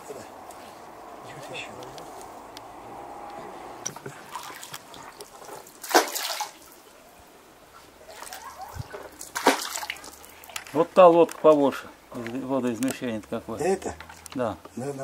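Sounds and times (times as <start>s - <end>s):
water sloshing around a boat: 3.9s - 7.1s, 7.7s - 10.7s
loud splash: 5.7s - 6.7s, 8.1s - 10.2s.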